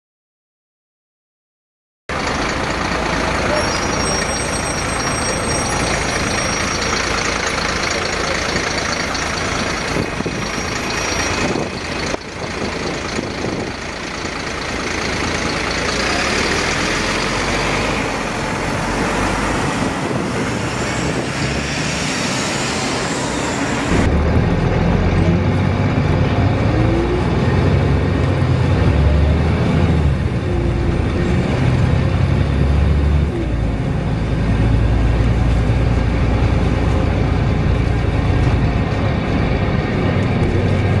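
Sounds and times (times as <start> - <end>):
bus engine running: 2.1 - 41.0
thin high screeching: 3.5 - 7.0.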